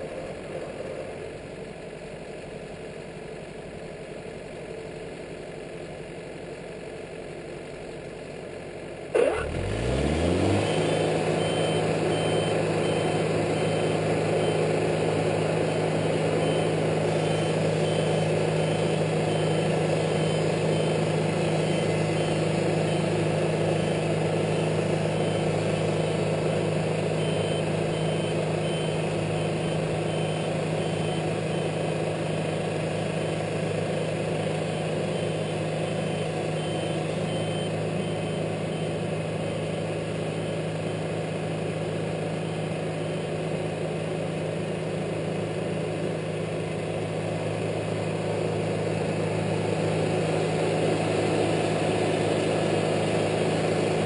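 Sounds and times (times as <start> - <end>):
band sawmill cutting log: 9.2 - 12.2.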